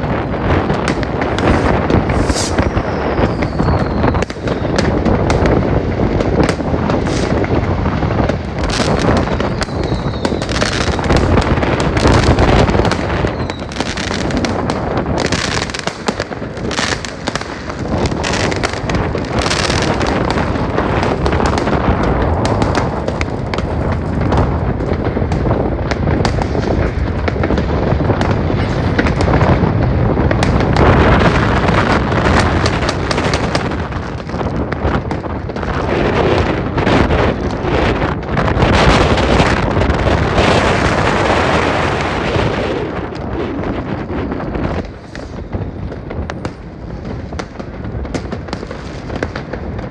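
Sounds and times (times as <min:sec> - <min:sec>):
fireworks and firecrackers bangs: 0:00.0 - 0:49.9.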